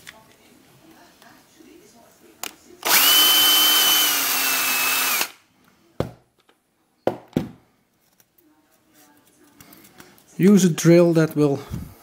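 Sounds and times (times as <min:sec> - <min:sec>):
electric drill whining: 0:02.8 - 0:05.4.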